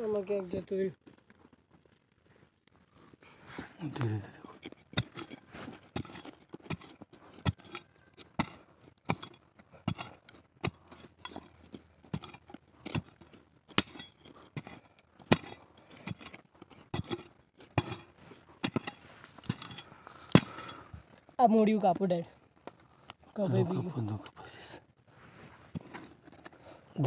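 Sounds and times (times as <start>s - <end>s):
metal tool scraping into soil: 3.5s - 21.2s, 25.2s - 27.0s.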